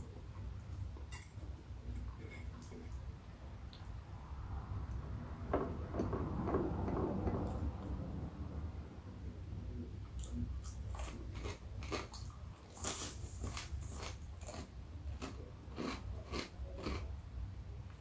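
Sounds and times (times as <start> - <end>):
crunchy chewing: 10.2 - 17.1.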